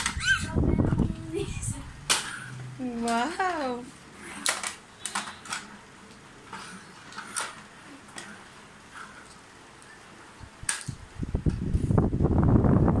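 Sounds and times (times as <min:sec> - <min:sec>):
toy train cars clicking on wood: 0:02.1 - 0:09.4, 0:10.7 - 0:11.0.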